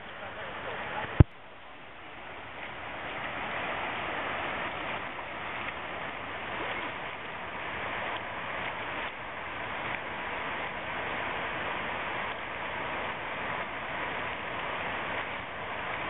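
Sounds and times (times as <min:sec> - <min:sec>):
fast river water rushing: 0:00.0 - 0:16.0.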